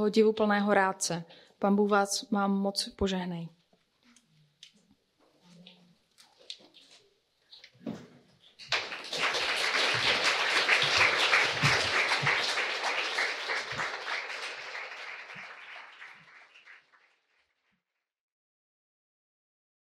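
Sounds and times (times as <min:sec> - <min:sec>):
audience applauding: 0:08.6 - 0:17.2.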